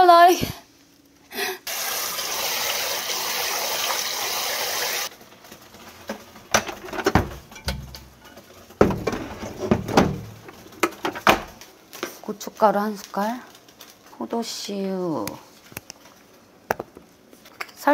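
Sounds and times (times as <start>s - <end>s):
rice washed by hand: 1.7s - 5.1s
tap water running into pot: 1.7s - 5.1s.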